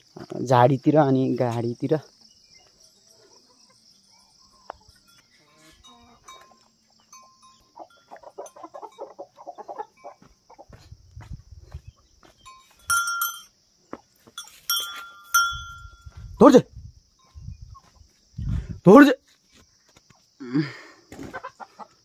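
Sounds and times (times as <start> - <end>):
insects droning: 0.0 - 22.0
steps rustling on dry ground: 9.2 - 20.4.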